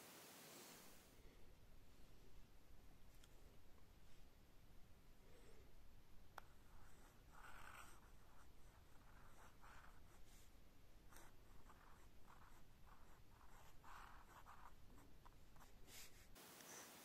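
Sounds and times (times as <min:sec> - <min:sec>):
fountain pen scratching on paper: 0:06.4 - 0:10.5, 0:11.1 - 0:16.1.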